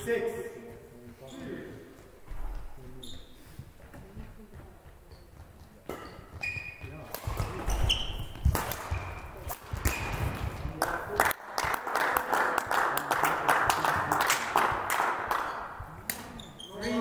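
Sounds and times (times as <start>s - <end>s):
footsteps: 0.0s - 11.2s
shoe squeaks: 1.2s - 1.8s, 2.7s - 3.8s, 5.1s - 10.6s, 15.5s - 17.0s
racket hitting shuttlecock: 5.8s - 10.6s
applause: 10.8s - 15.6s.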